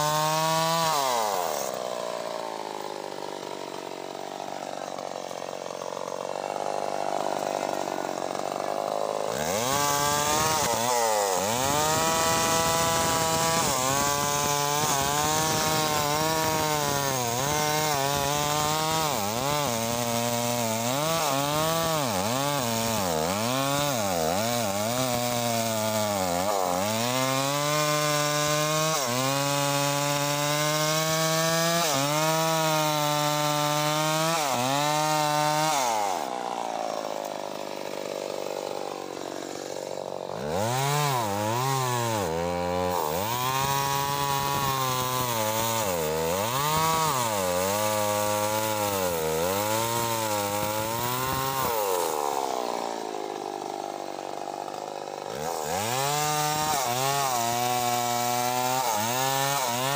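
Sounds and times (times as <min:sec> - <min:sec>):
chainsaw cutting log: 0:00.0 - 0:59.9.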